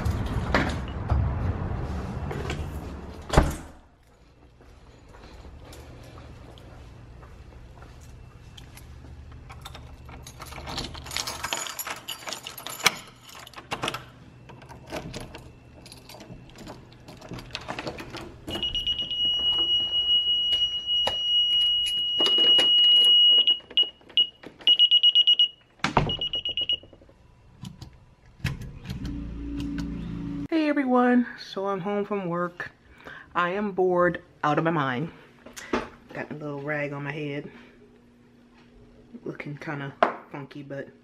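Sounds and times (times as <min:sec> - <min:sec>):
keys jangling: 0:08.6 - 0:18.3
alarm keypad warning beep: 0:18.5 - 0:26.8.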